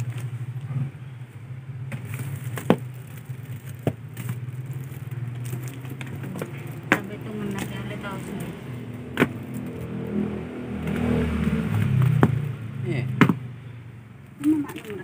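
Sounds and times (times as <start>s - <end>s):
cartons knocking: 1.8s - 8.5s, 9.1s - 9.8s, 11.7s - 12.5s, 13.1s - 13.5s.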